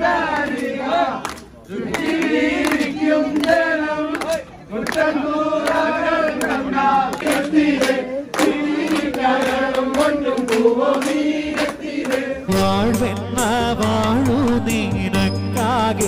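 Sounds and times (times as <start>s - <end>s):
crowd singing a chant: 0.0s - 16.0s
hand claps: 0.3s - 12.4s
recorded music: 12.5s - 16.0s.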